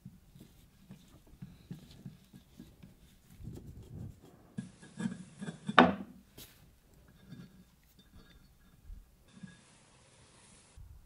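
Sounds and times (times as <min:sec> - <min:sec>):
tool knocking on countertop: 0:05.8 - 0:06.2.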